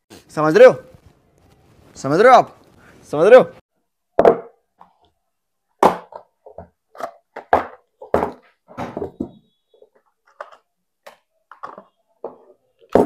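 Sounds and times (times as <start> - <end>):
cardboard boxes tapping and knocking: 5.8 - 9.4, 11.5 - 13.0.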